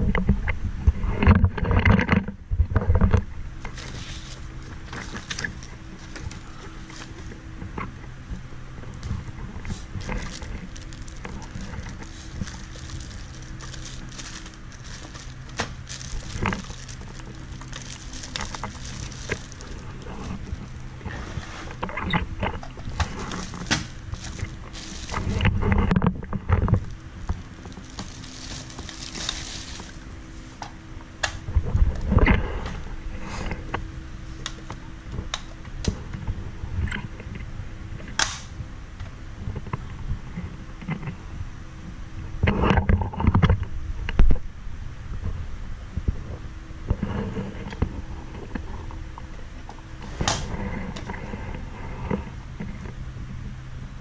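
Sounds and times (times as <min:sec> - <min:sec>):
faint steady hum: 0:00.0 - 0:54.0
plastic bag crinkling: 0:03.6 - 0:08.3, 0:08.9 - 0:30.6.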